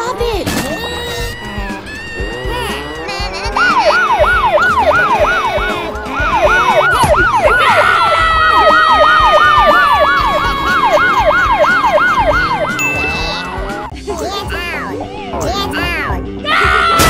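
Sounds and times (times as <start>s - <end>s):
police siren yelping: 1.1s - 13.9s
long steady siren tone sliding lower: 3.6s - 12.8s.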